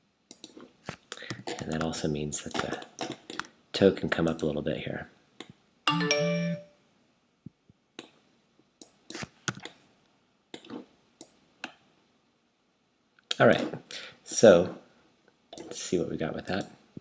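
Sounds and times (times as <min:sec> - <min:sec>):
mouse and keyboard clicks: 0:00.3 - 0:03.5, 0:08.8 - 0:09.8.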